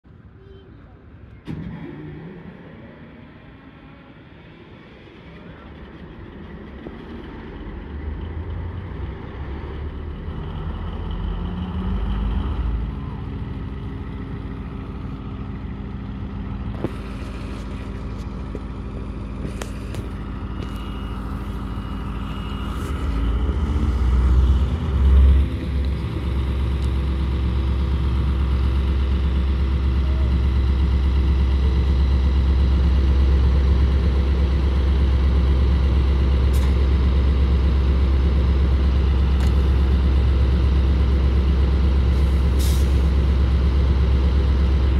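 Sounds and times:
diesel engine idling: 0:00.1 - 0:44.9
machinery hum: 0:13.2 - 0:42.5.

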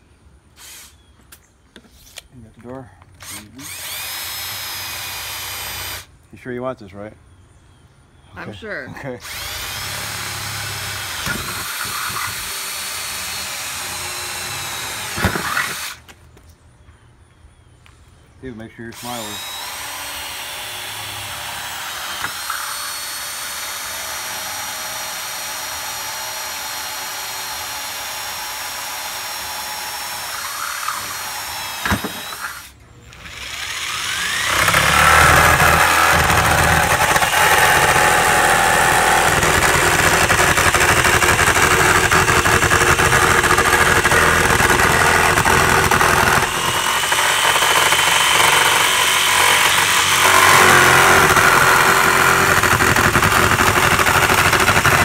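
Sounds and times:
jigsaw cutting: 0:03.2 - 0:06.1, 0:09.2 - 0:16.0, 0:19.0 - 0:55.0
high-pitched power tool whine: 0:19.0 - 0:55.0.

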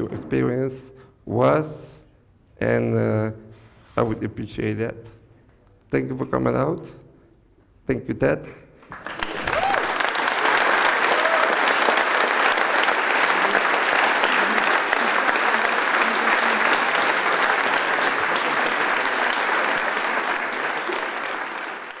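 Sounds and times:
audience applauding: 0:08.9 - 0:22.0.

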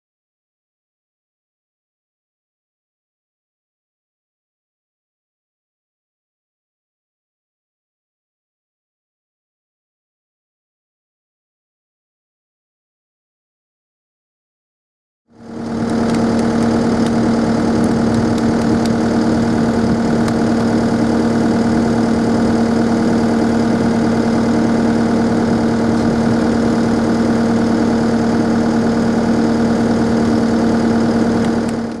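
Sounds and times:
engine idling: 0:15.4 - 0:32.0.

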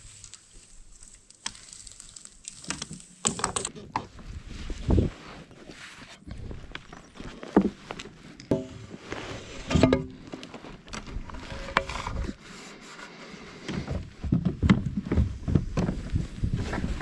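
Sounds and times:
knocks and scrapes in plastic kayak: 0:03.6 - 0:17.0.

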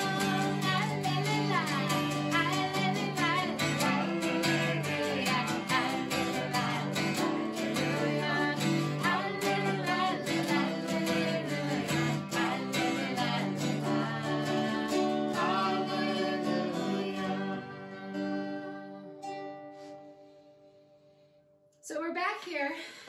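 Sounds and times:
woman singing: 0:00.0 - 0:19.2
acoustic guitars strumming: 0:00.0 - 0:20.8.

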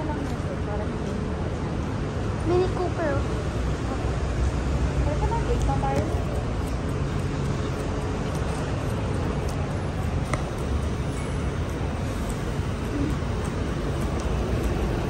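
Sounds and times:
low vehicle rumble: 0:00.0 - 0:15.0.

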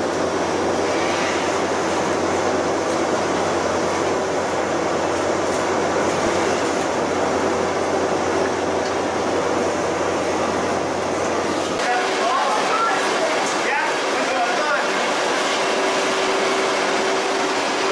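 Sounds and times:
conveyors and motors running: 0:00.0 - 0:17.9.

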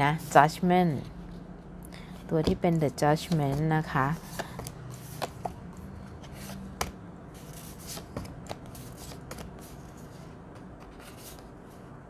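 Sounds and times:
cards swishing: 0:06.2 - 0:11.5.

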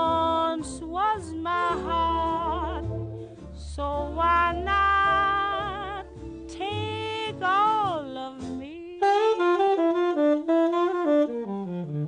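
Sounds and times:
steady low bass: 0:00.0 - 0:08.8.

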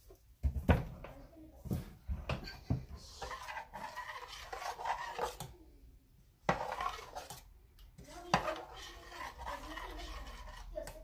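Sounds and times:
spoon scraping metal bowl: 0:03.0 - 0:05.5, 0:06.4 - 0:11.0.

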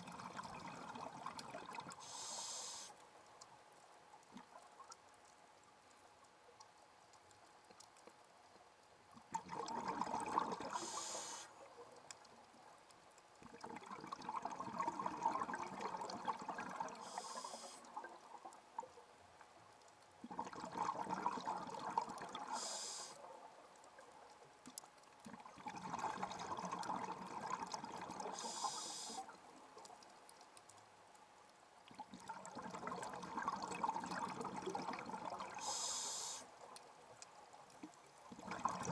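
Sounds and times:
regulator hiss: 0:02.0 - 0:03.0, 0:10.8 - 0:11.6, 0:17.0 - 0:17.8, 0:22.5 - 0:23.2, 0:28.3 - 0:29.3, 0:35.6 - 0:36.5.

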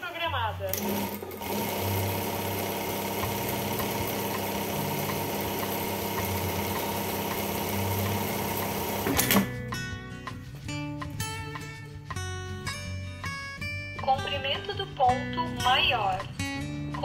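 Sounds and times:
sewing machine running: 0:00.7 - 0:09.5
sewing machine clatter: 0:00.8 - 0:09.5.

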